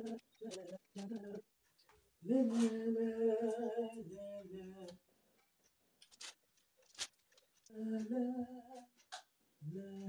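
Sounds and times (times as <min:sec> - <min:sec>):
person humming: 0:00.0 - 0:01.4.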